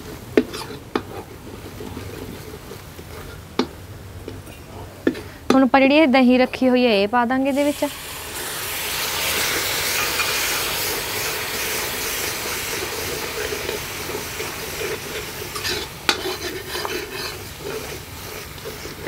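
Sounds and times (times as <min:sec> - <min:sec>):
metal spatula scraping a pan: 0:00.0 - 0:03.4, 0:09.4 - 0:19.0
yogurt sizzling in hot oil: 0:07.4 - 0:19.0.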